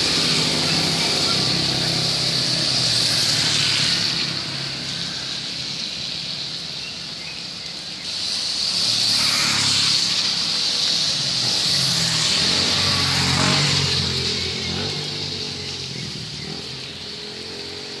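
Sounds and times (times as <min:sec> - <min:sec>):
motorbike engine: 0:00.0 - 0:04.7, 0:09.0 - 0:18.0
motorbike passing: 0:00.0 - 0:06.8, 0:08.0 - 0:18.0
rain hiss on wet road: 0:00.0 - 0:18.0
tyres swishing on wet asphalt: 0:00.0 - 0:18.0.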